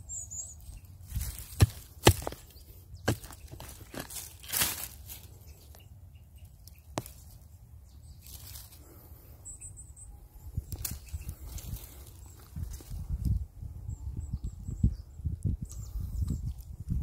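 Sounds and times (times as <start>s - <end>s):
dry pine needles and leaves rustling: 0.0s - 9.6s, 10.2s - 13.7s
fingers brushing earth: 0.8s - 5.8s, 6.6s - 7.6s
hand hoe scraping dry soil: 1.0s - 5.4s.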